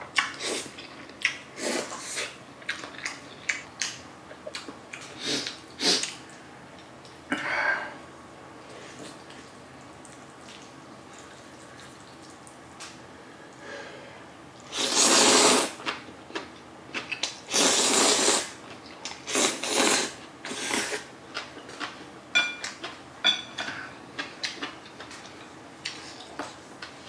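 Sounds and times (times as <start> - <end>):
smacking chewing: 9.0 - 12.9.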